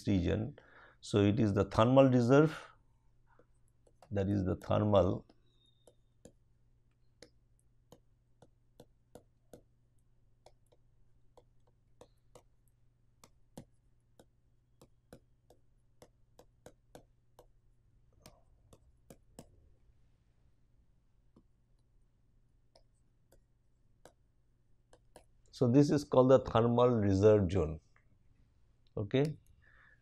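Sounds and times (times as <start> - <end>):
stylus tapping on tablet: 3.4 - 19.7, 21.2 - 25.5.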